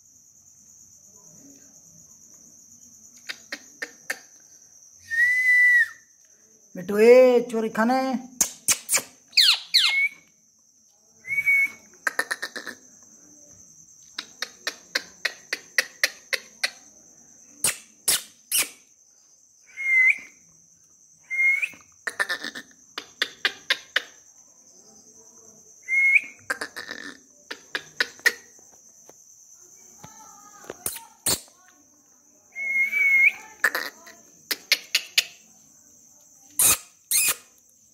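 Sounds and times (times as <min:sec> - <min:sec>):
parakeet whistled calls: 0:09.3 - 0:10.2.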